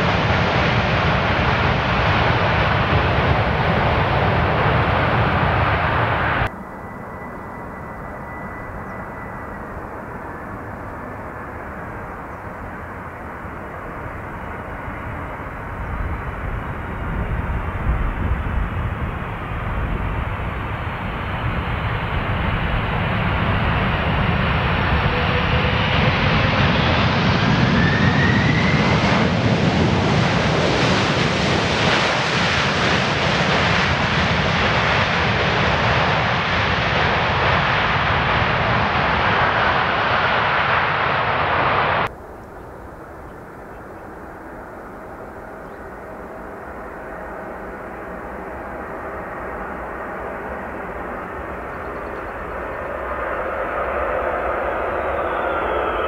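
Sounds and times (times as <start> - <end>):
jet engines on approach: 0.0 - 56.0
faint rising whine: 5.9 - 12.4.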